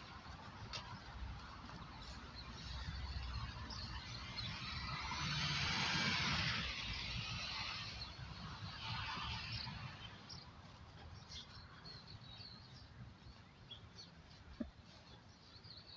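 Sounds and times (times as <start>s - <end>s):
wind rumble: 0.0s - 12.0s.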